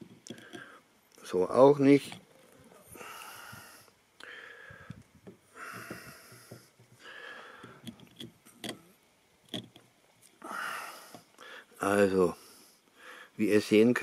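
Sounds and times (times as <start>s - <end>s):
slow breaths: 2.5s - 8.0s, 10.4s - 13.4s.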